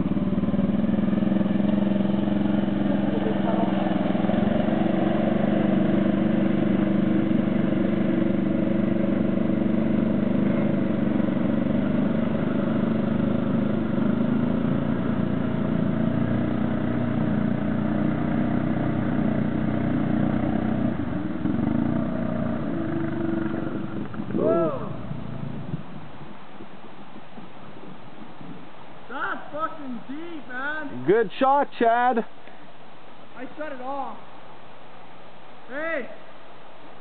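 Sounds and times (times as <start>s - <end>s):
water splashing around wheels: 0.0s - 24.4s
quad engine running: 0.0s - 26.0s.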